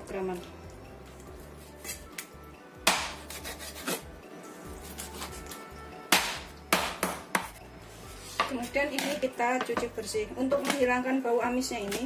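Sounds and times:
background music: 0.0 - 12.0
cleaver chopping on wooden board: 2.8 - 4.0, 6.1 - 7.6.

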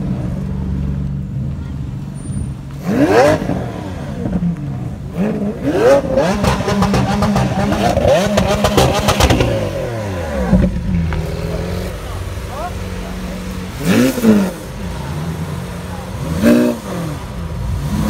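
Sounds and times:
car engine revving: 0.0 - 18.0
exhaust crackling: 0.0 - 18.0
car engine idling: 4.0 - 18.0.

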